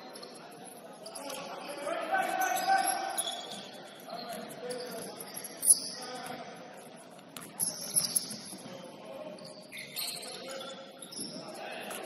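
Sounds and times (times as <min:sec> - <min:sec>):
sneakers squeaking on gym floor: 0:02.3 - 0:06.6, 0:07.2 - 0:12.0.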